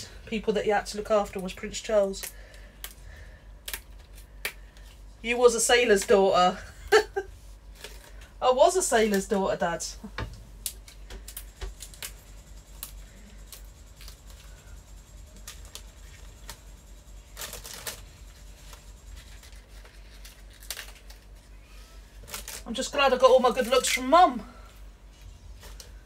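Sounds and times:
leaves tearing and rustling: 10.6s - 14.6s, 17.3s - 21.5s, 22.2s - 24.0s.

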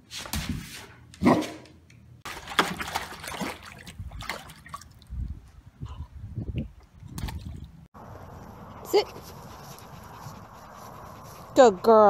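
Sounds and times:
water splashing in paddling pool: 2.2s - 5.1s.

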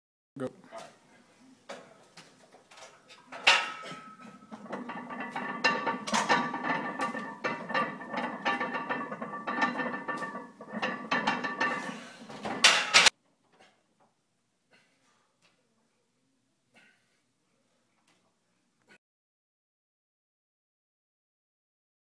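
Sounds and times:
weight plates clanking: 2.7s - 13.1s.

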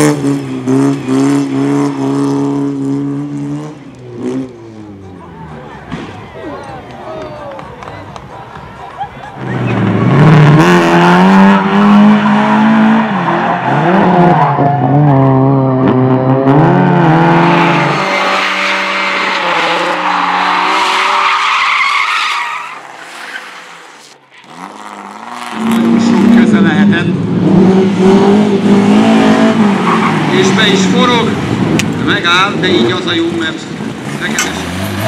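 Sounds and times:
rally car engine revving: 0.0s - 6.4s, 9.2s - 35.0s
tyre squeal on pavement: 18.2s - 25.6s.

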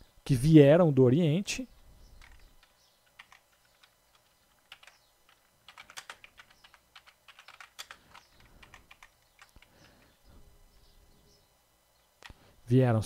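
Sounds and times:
keyboard typing: 2.2s - 10.2s.

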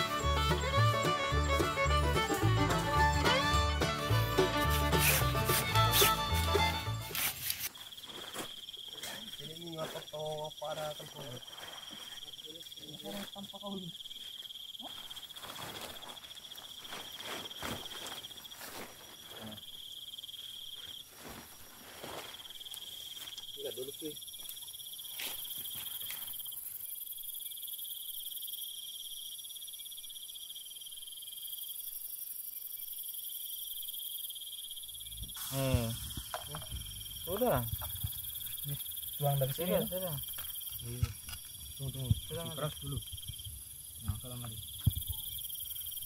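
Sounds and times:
night insects trilling: 0.0s - 46.0s
tent poles clicking: 4.6s - 7.8s, 40.4s - 41.6s
tent fabric rustling: 4.7s - 8.7s, 11.4s - 12.3s, 14.8s - 19.7s, 20.4s - 23.4s
high hiss: 35.0s - 40.2s.

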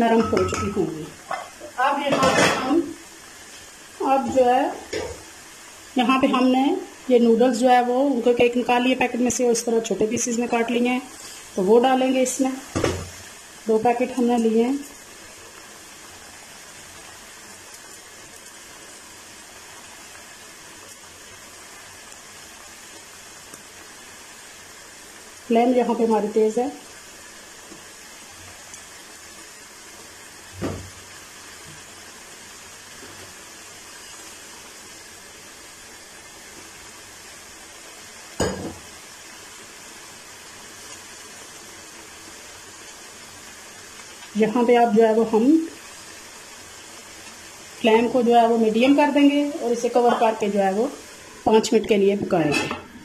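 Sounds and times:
broth boiling in a pot: 0.0s - 53.0s
utensil knocking steel pot: 0.2s - 0.8s.

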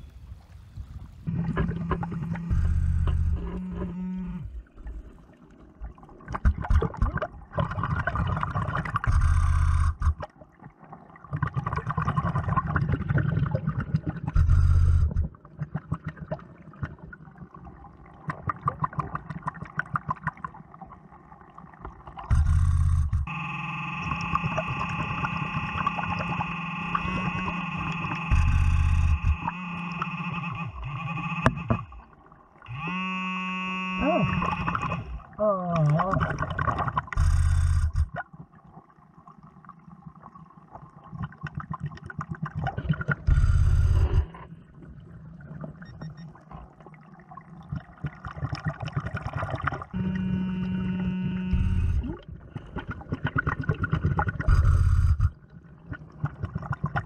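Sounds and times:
bubbles rushing out: 4.6s - 14.5s, 15.3s - 22.4s, 34.4s - 37.2s, 37.9s - 50.0s, 51.9s - 57.0s
steady high whine: 22.3s - 32.0s, 50.0s - 52.2s.

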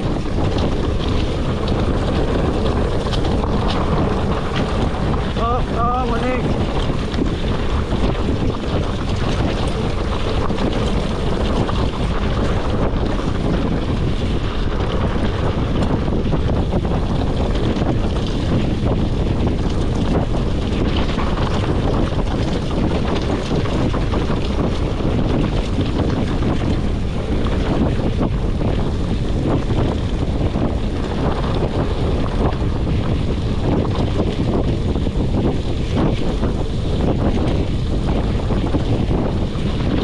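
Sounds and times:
bike rattling: 0.0s - 40.0s
bike tyres crunching on gravel: 0.0s - 40.0s
wind buffeting microphone: 0.0s - 40.0s.

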